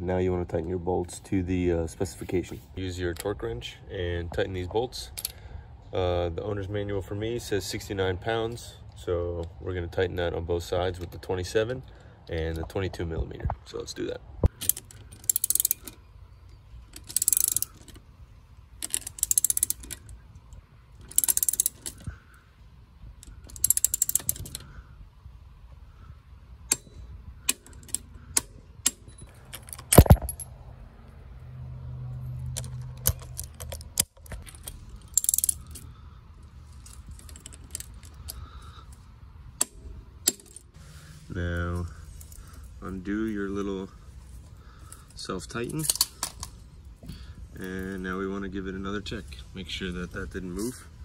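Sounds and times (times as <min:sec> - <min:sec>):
torque wrench ratchet clicking: 0:14.5 - 0:16.0, 0:17.0 - 0:18.0, 0:18.8 - 0:20.1, 0:21.0 - 0:22.1, 0:23.2 - 0:24.7, 0:34.7 - 0:35.9
loud sharp wrench click: 0:26.7 - 0:29.2.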